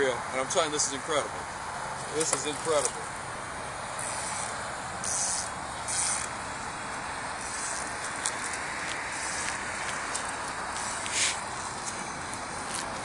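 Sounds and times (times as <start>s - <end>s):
outdoor background noise: 0.0s - 13.0s
fly line swishing: 7.4s - 13.0s.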